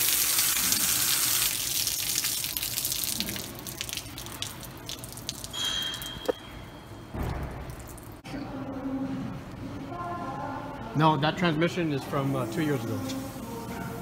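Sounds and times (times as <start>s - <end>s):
liquid splashing onto floor: 0.0s - 6.2s
dripping liquid: 0.0s - 6.4s, 7.5s - 8.2s.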